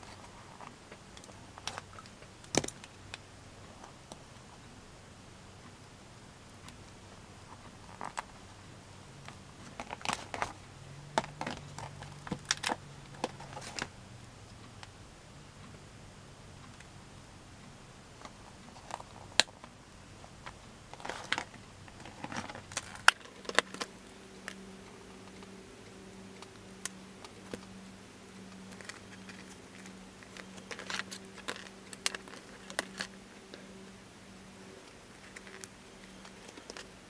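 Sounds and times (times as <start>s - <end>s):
paper crinkling rustles: 28.5s - 33.9s.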